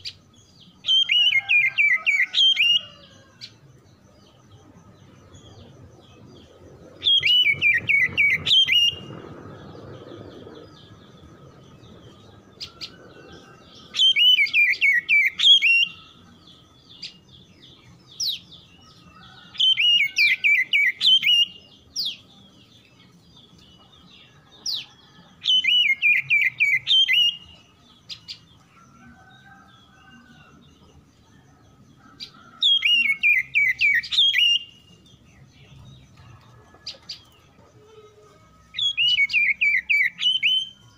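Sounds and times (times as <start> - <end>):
bird whistling song: 0.8 - 3.3, 6.9 - 16.2, 18.2 - 22.3, 24.7 - 28.5, 32.6 - 35.1, 38.7 - 40.9.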